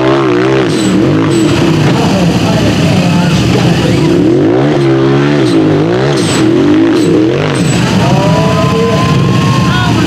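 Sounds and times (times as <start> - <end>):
engine revving hard: 0.0 - 10.0.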